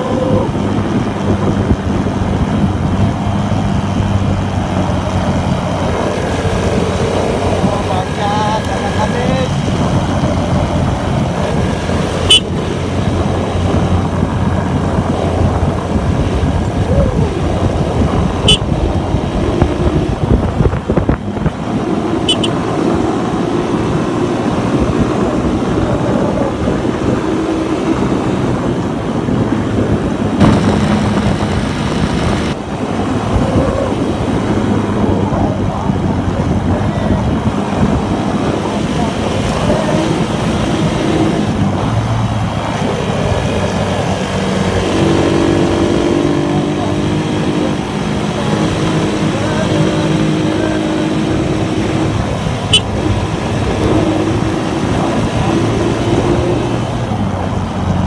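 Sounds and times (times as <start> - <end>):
motorcycle engine running: 0.0 - 24.0, 30.4 - 32.6
wind on microphone: 0.0 - 58.0.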